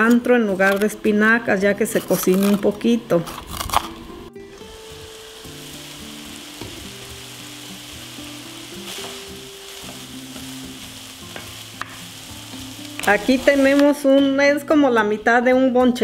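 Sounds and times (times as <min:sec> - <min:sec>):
meat frying in a skillet: 0:04.7 - 0:14.0.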